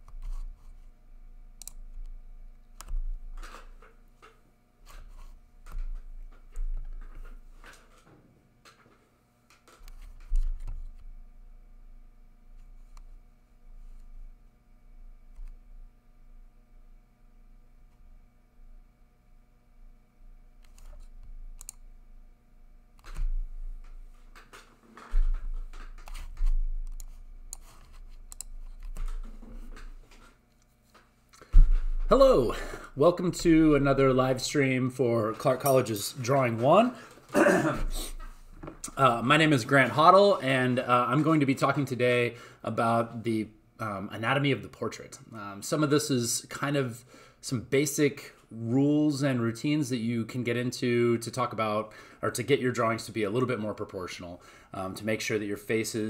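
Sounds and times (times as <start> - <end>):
clicks taps and rustles: 23.0 - 32.1.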